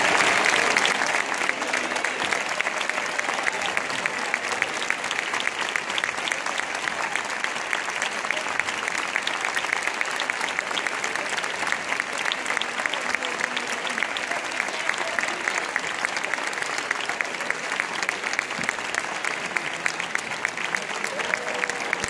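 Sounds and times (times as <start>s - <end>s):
audience applause: 0.0s - 22.0s
sharp claps close by: 16.6s - 22.0s.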